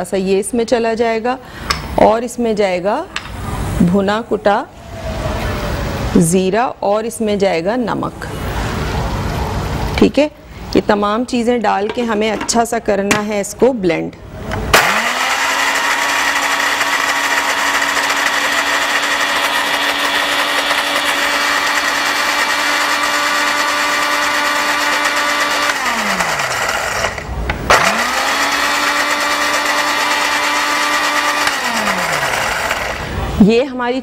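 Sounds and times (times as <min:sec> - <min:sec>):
electric blender motor whine: 0:14.6 - 0:33.3.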